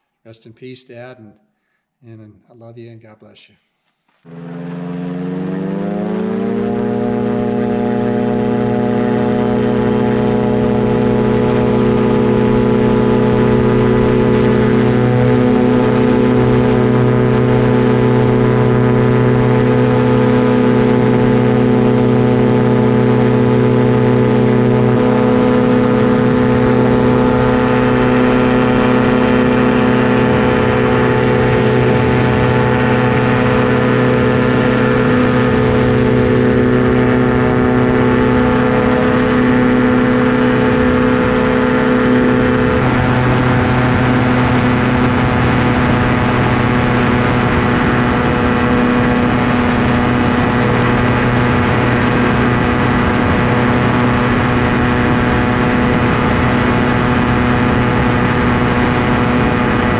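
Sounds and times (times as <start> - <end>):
aircraft engine and propeller drone: 4.3 - 59.9.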